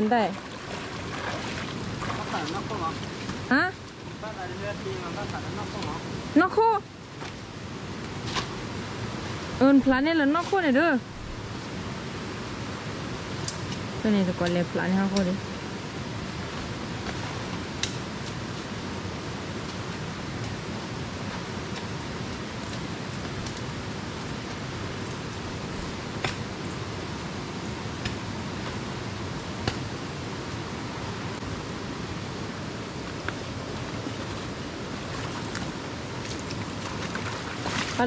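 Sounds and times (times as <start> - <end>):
flowing water rushing: 0.0 - 38.0.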